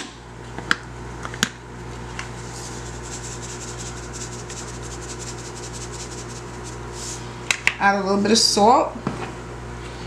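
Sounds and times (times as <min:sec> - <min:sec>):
salt shaking rattle: 0:02.5 - 0:07.2.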